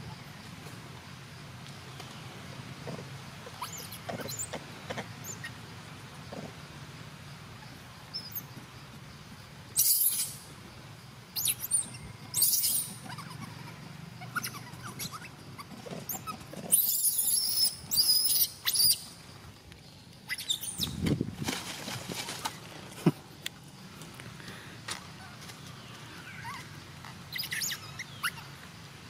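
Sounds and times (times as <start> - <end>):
baby monkey squealing: 3.5 - 4.5, 9.8 - 10.4, 11.4 - 19.1, 20.3 - 21.0, 26.2 - 26.7, 27.3 - 28.5.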